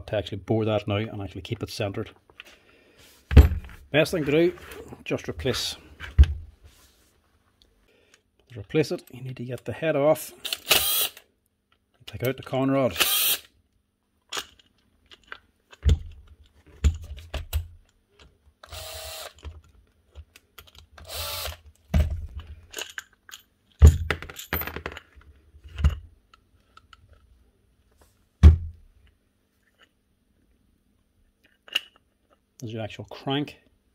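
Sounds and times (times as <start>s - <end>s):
impact driver whirring: 18.7s - 19.4s, 21.0s - 21.6s.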